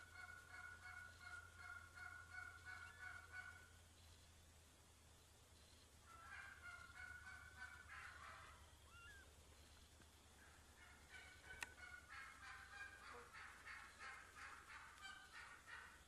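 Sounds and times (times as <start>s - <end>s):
turkey hens yelping: 0.0s - 3.7s, 6.0s - 9.3s, 10.3s - 16.0s.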